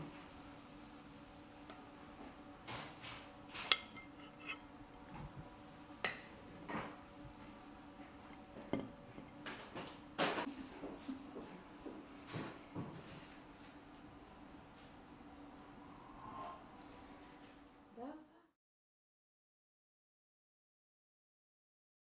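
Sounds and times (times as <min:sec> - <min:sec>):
spoon clinking on a plate: 0:03.7 - 0:04.6
metal spoon scraping a pot: 0:03.7 - 0:04.7.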